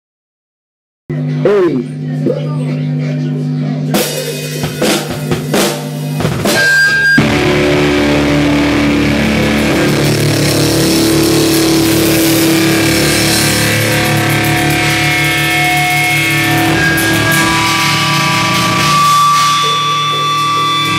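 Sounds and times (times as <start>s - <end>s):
rock band playing: 3.9s - 20.9s
loose drum hits: 4.0s - 20.9s
steady low hum: 7.2s - 20.9s.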